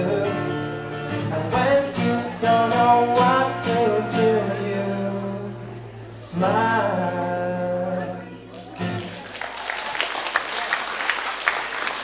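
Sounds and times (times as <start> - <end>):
acoustic guitar chords ringing: 0.0 - 9.1.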